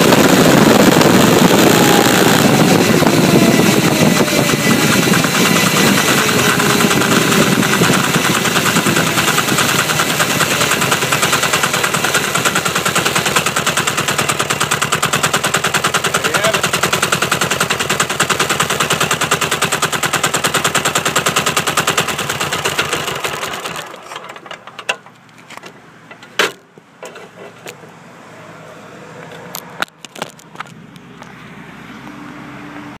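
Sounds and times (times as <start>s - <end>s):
wind rush: 0.0s - 11.0s
diesel motorcycle engine running: 0.0s - 24.0s
sharp clicks and knocks: 3.8s - 27.8s, 29.4s - 31.4s.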